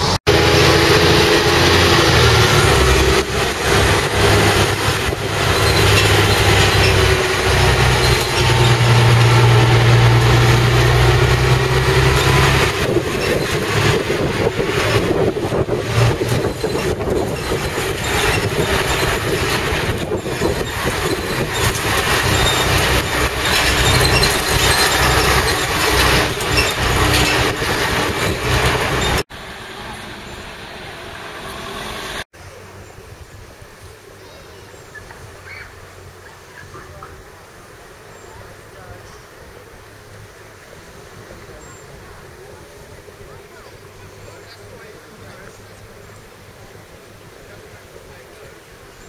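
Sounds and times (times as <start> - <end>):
bus body rattle: 0.0 - 29.2
bus diesel engine drone: 0.0 - 49.0
road noise: 0.0 - 49.0
wind: 0.0 - 49.0.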